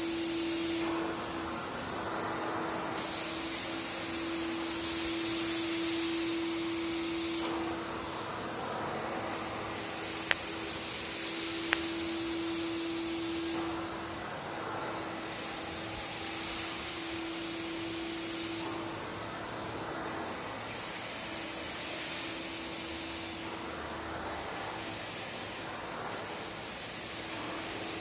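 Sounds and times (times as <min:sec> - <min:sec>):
vacuum nozzle sucking on concrete: 0:00.0 - 0:01.1, 0:02.0 - 0:07.9, 0:08.9 - 0:13.8
vacuum cleaner running: 0:00.0 - 0:28.0.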